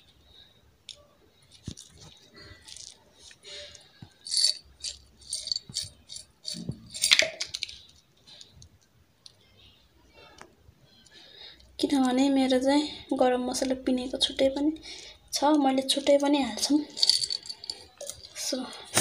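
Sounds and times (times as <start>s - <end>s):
spices rattling in container: 1.5s - 3.4s, 4.2s - 8.0s, 15.9s - 18.6s.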